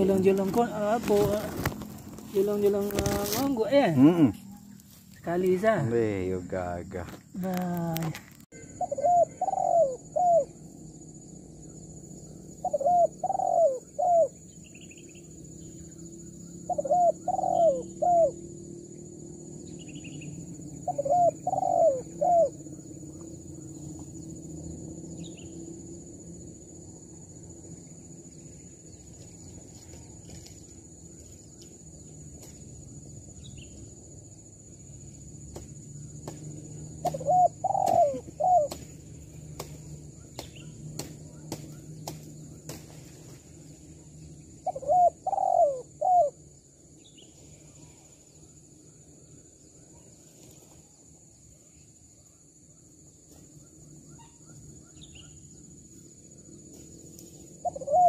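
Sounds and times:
dove cooing: 8.6s - 10.6s, 12.5s - 14.4s, 16.6s - 18.4s, 20.7s - 23.2s, 37.0s - 38.8s, 44.6s - 46.4s, 57.6s - 58.0s.

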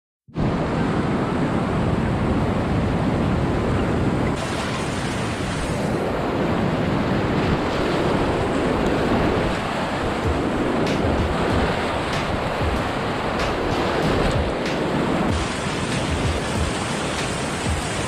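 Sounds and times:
waves breaking over kayak: 0.4s - 18.0s
whitewater rapids rushing: 4.3s - 18.0s.

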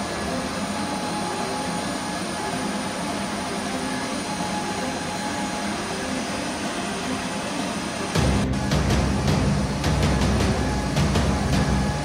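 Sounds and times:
jet engine roar: 0.0s - 12.0s.

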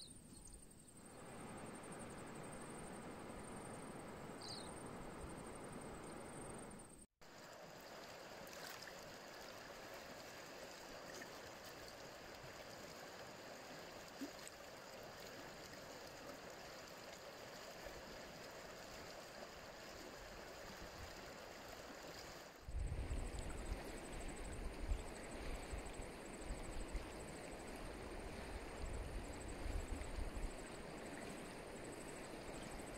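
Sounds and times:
river flowing over stones: 7.2s - 22.7s.

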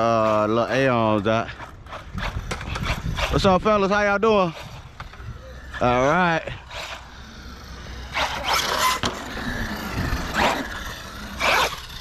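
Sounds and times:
electric motor whining: 4.5s - 12.0s
tyre noise on concrete: 8.0s - 12.0s.

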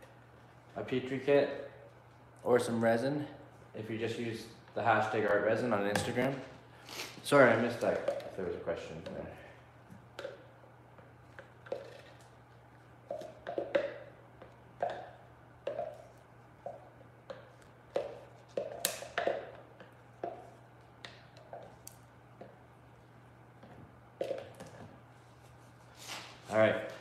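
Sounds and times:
plastic cup tapping bucket: 7.7s - 8.4s, 13.0s - 21.8s.

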